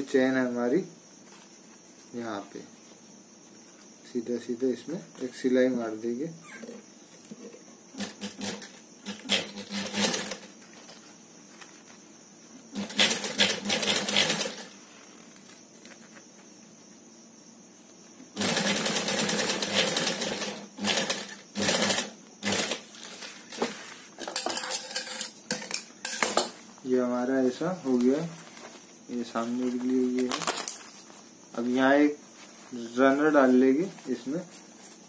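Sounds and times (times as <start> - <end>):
sewing machine stitching: 8.0 - 10.5, 12.7 - 14.7, 18.4 - 22.9.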